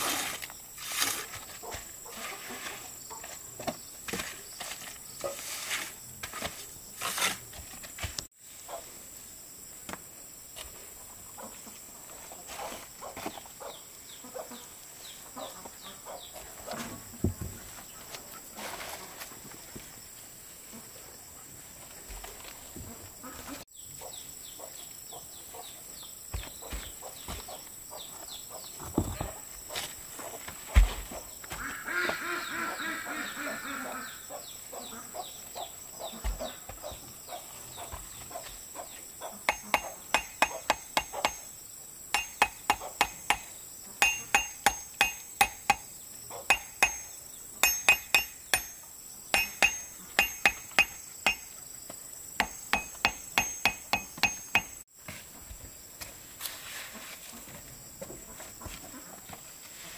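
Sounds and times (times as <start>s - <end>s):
farm bird calling: 30.2s - 41.6s, 42.2s - 51.6s
building work knocks: 39.5s - 41.5s, 42.2s - 45.9s, 46.5s - 48.8s, 49.4s - 51.6s, 52.4s - 54.8s
ringing hammer blows on metal: 39.5s - 51.6s, 52.4s - 54.8s.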